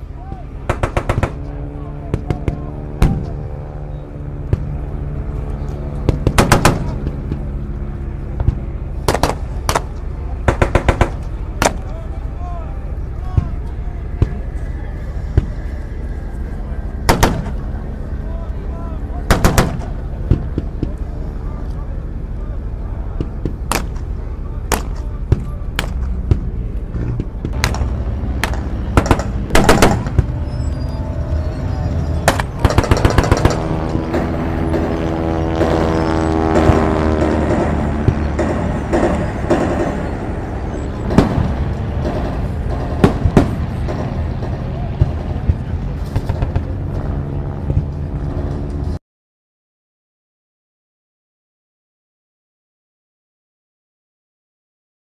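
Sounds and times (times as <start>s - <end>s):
low engine drone: 0.0s - 49.0s
low rumble of distant fighting: 0.0s - 49.0s
gunfire bursts: 0.7s - 1.4s, 6.2s - 7.0s, 9.1s - 11.8s, 17.1s - 17.6s, 19.3s - 20.0s, 27.6s - 30.3s, 32.2s - 35.0s
rifle shots: 0.7s - 1.4s, 6.2s - 7.0s, 9.1s - 11.8s, 17.1s - 17.6s, 19.3s - 19.9s, 27.6s - 30.3s, 32.2s - 35.0s.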